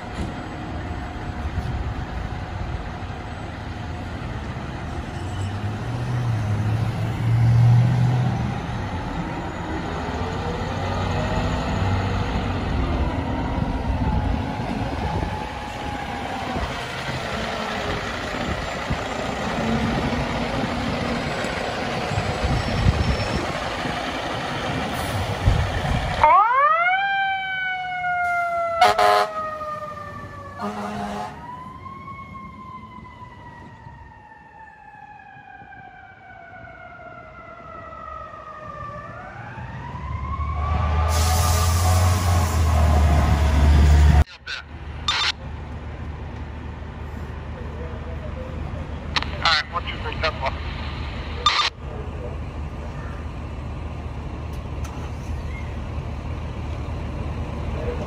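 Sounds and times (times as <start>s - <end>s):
fire truck engines running: 0.0s - 58.0s
wailing siren sweeping: 6.1s - 23.9s, 26.2s - 45.4s
siren rising and falling: 7.2s - 17.2s, 26.2s - 45.4s
short horn blasts: 28.8s - 29.3s, 30.6s - 31.4s.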